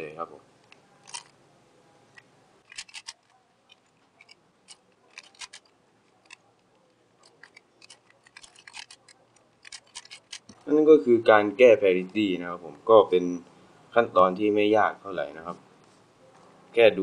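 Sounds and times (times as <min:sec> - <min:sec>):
puzzle plastic clicks: 0:02.6 - 0:06.5, 0:07.2 - 0:10.6.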